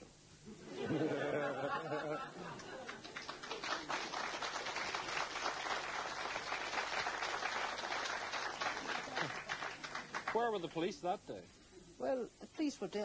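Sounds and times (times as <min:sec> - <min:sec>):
audience applauding: 0:02.5 - 0:10.9.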